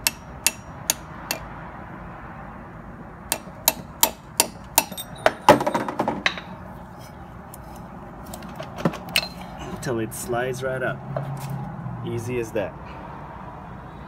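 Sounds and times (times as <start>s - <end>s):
hammer tapping metal tool: 0.0s - 1.4s, 3.3s - 5.6s.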